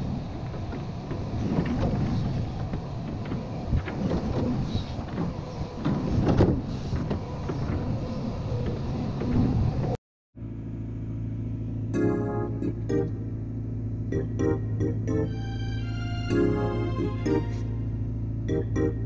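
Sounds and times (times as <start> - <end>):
excavator diesel engine running: 11.2 - 19.0.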